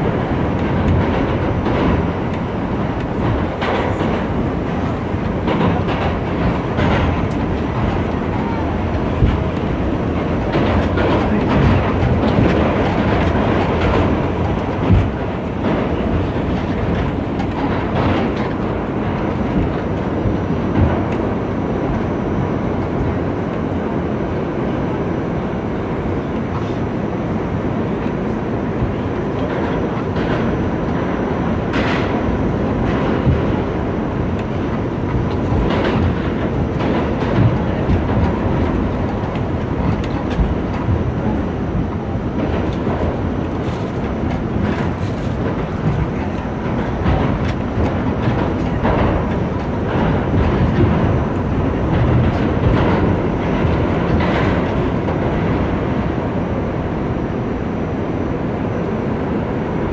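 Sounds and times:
rail clicks and clatter: 0:00.0 - 0:59.9
train wheels rumbling on rails: 0:00.0 - 0:59.9.

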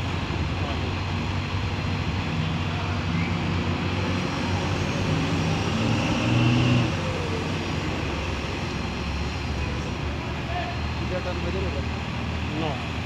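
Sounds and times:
engine revving: 0:00.0 - 0:10.2
heavy machinery diesel engines: 0:00.0 - 0:13.0.

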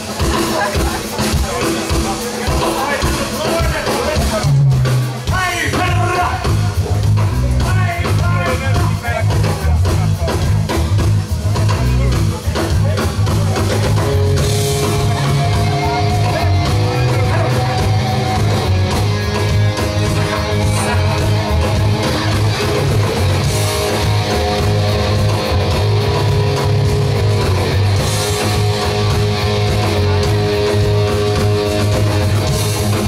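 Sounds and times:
drum kit: 0:00.0 - 0:33.0
electric bass: 0:00.0 - 0:33.0
guitar chords: 0:13.8 - 0:33.0.

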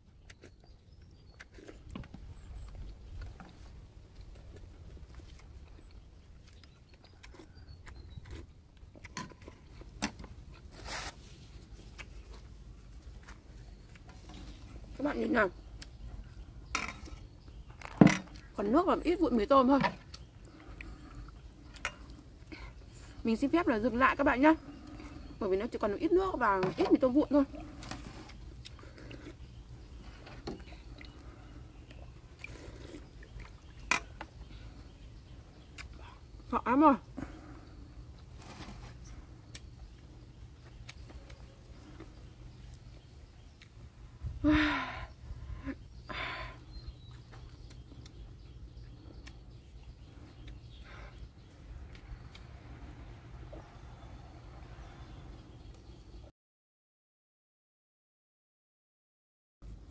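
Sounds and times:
person chewing: 0:04.1 - 0:09.8.

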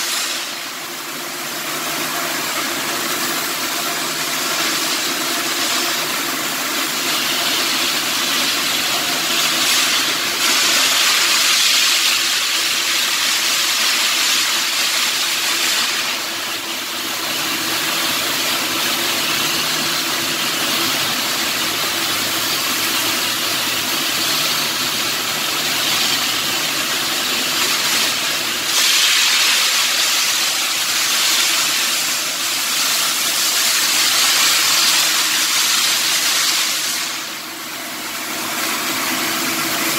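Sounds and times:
welding arc crackling: 0:06.7 - 0:16.5, 0:20.8 - 0:37.5.

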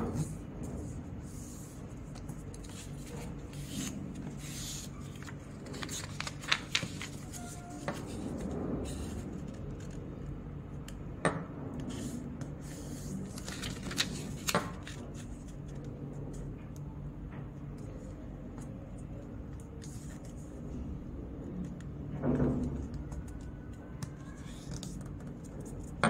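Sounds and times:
steady low hum: 0:00.0 - 0:26.0
paper rustling and creasing: 0:00.1 - 0:10.1, 0:11.9 - 0:15.9.

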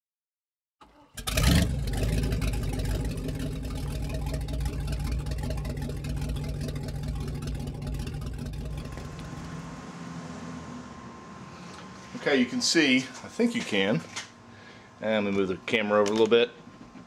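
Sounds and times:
engine starting and running: 0:00.8 - 0:14.4.

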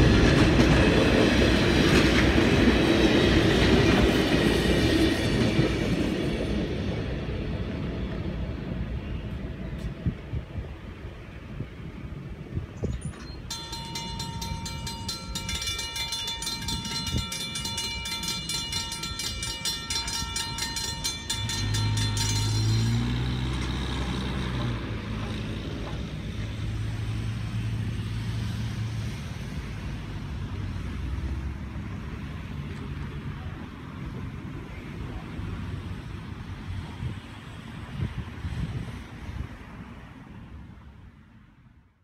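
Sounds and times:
crossing signal bells ringing: 0:12.8 - 0:25.5
truck engine pulling away: 0:21.3 - 0:31.8.

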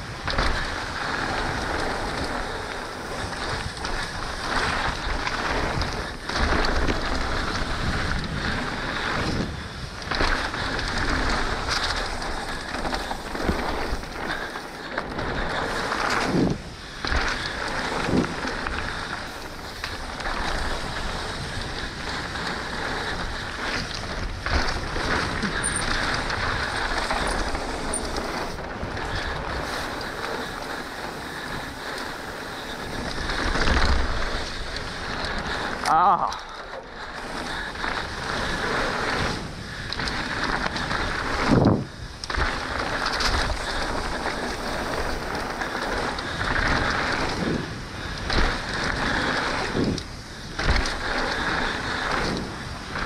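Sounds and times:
bike tyres rolling on dirt: 0:00.0 - 0:53.0
wind buffeting microphone: 0:36.9 - 0:53.0.

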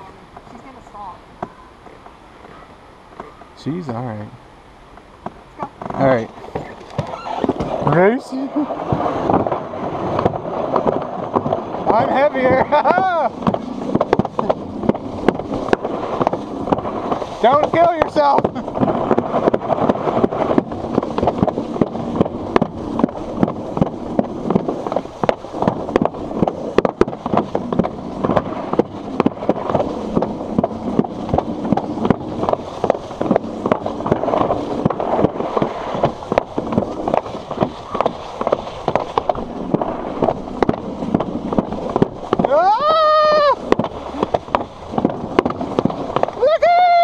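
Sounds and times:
sled wheels rumbling: 0:00.0 - 0:47.0
person shouting: 0:42.5 - 0:43.6, 0:46.4 - 0:47.0.

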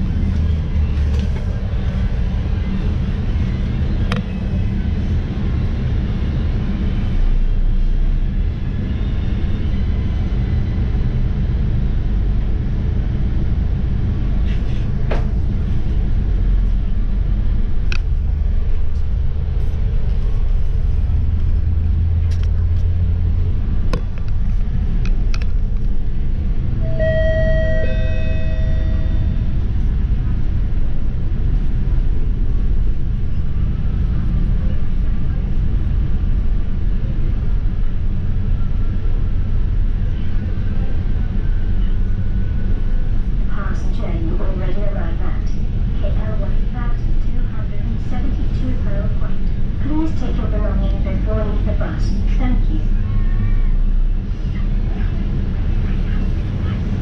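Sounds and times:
bus engine and road rumble: 0:00.0 - 0:57.0
two-note falling chime: 0:26.8 - 0:29.4.

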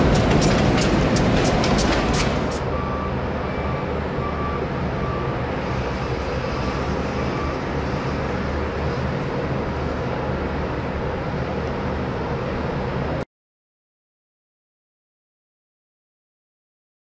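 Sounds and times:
diesel train rumble: 0:00.0 - 0:13.2
industrial hum: 0:00.0 - 0:13.2.

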